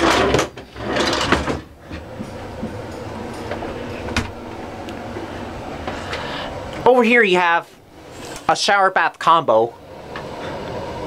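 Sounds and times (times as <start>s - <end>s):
wooden drawer sliding with rattle: 0.0s - 2.1s.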